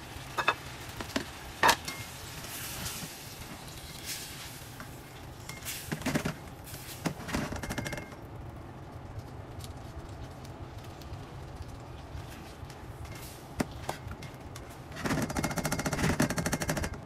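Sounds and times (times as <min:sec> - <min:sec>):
food sizzling in a wok: 0:00.0 - 0:07.0.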